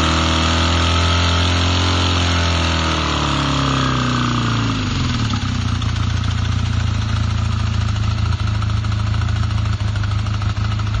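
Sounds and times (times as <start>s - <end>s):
motorcycle engine idling: 2.9s - 11.0s.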